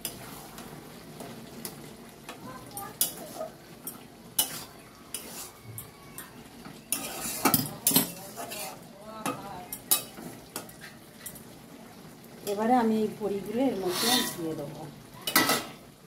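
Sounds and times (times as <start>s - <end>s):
food sizzling: 0.0s - 16.0s
metal spatula scraping a wok: 4.3s - 5.6s, 6.9s - 8.8s, 13.7s - 14.6s, 15.3s - 15.8s.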